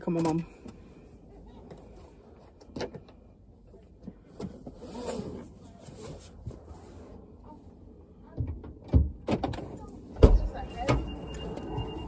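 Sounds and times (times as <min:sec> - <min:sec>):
seatbelt being pulled out: 0:04.7 - 0:06.4.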